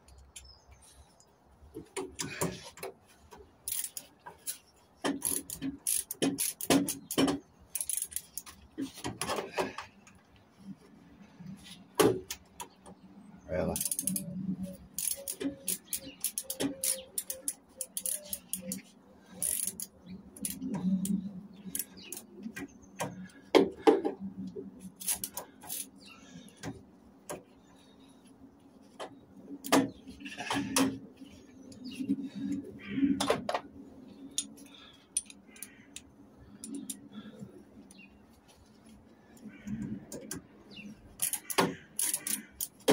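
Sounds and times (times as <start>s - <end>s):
hand tools clicking on metal: 3.6s - 9.2s, 13.8s - 22.6s, 25.0s - 26.7s, 34.3s - 37.1s, 41.1s - 42.9s.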